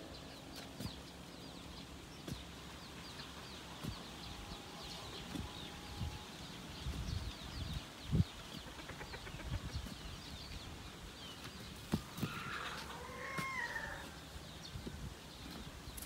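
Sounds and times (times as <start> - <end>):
rooster crowing: 12.3 - 14.2.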